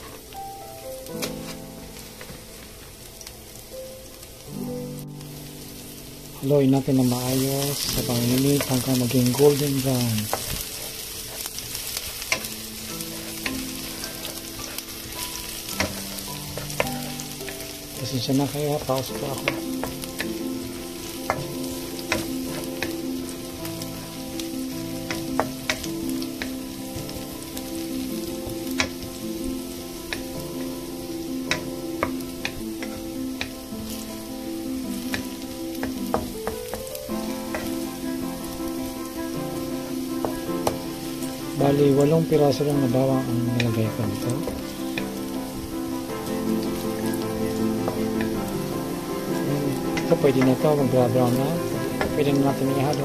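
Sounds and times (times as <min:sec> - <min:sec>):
garlic sizzling in hot oil: 0:00.0 - 0:53.0
soft background tune: 0:00.0 - 0:53.0
spatula tapping and scraping pan: 0:07.3 - 0:27.8, 0:28.4 - 0:30.8, 0:31.4 - 0:34.0, 0:34.9 - 0:37.9.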